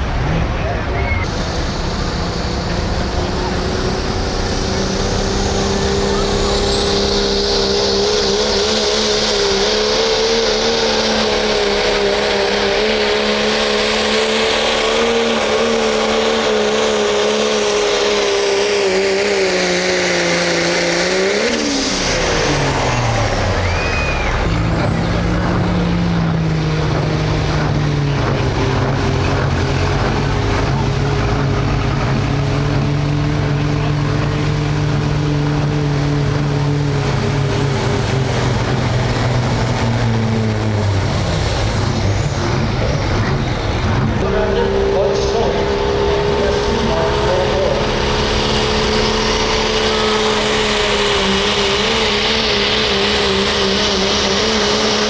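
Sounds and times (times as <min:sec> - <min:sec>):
truck engine revving under load: 0:00.0 - 0:55.0.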